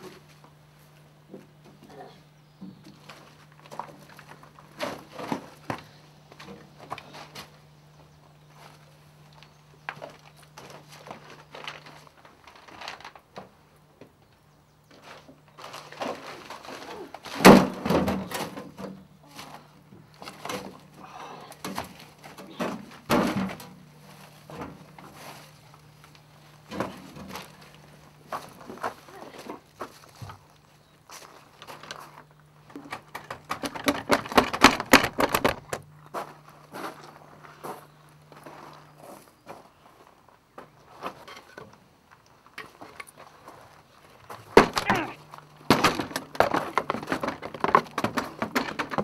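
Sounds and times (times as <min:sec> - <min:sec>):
wooden knocks and clatters: 0:32.7 - 0:35.8, 0:45.7 - 0:49.0
wooden bars rattling: 0:32.8 - 0:35.8, 0:44.6 - 0:49.0.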